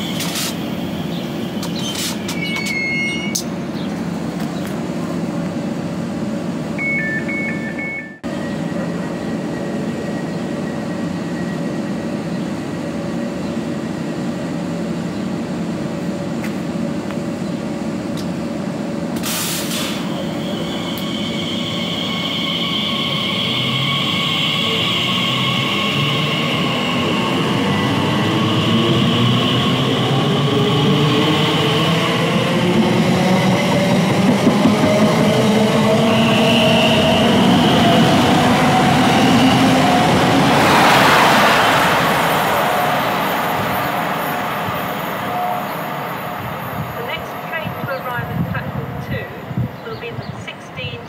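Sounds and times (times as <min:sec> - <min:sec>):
train electrical hum: 0:00.0 - 0:51.0
short high beeps: 0:06.8 - 0:08.2.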